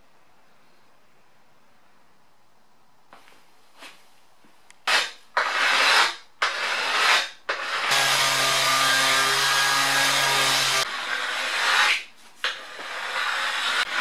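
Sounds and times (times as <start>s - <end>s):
hand scraper rasping on metal: 4.9s - 14.0s.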